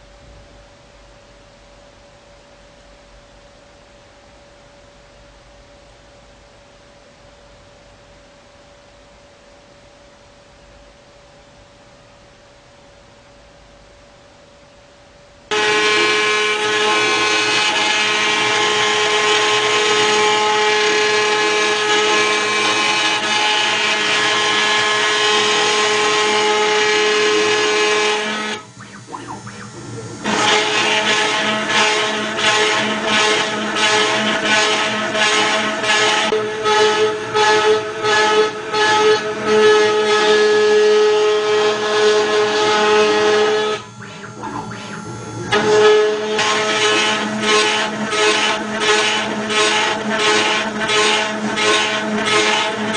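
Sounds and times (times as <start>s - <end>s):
router spindle whine: 27.3s - 35.8s, 43.1s - 52.9s
cutter milling metal: 27.8s - 36.2s, 43.1s - 52.9s.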